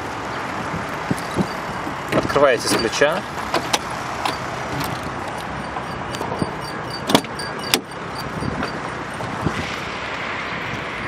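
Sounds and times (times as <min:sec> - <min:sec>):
car door handle and lock clicks: 0:01.1 - 0:08.9.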